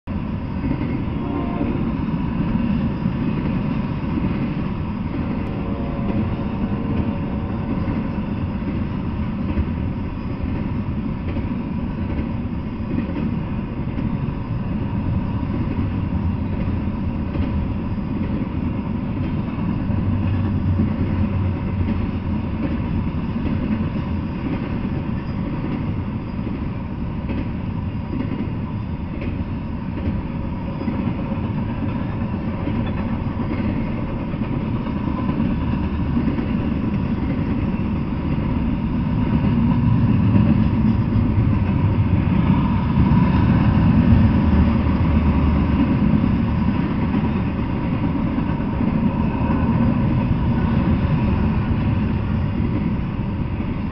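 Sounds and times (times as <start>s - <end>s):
freight train rolling past: 0.0s - 53.9s
steel wheels on rails: 0.1s - 53.9s.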